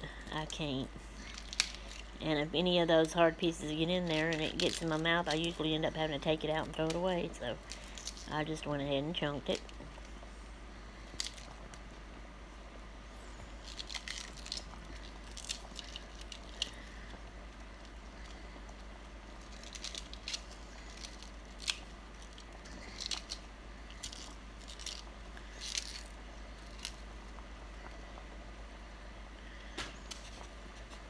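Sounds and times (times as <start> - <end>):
low steady hum: 0.0 - 31.0
cabbage leaves tearing: 13.5 - 17.0, 19.3 - 27.0.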